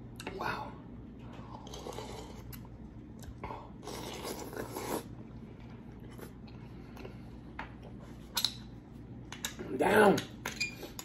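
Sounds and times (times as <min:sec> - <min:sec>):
soft chewing: 0:01.3 - 0:08.2.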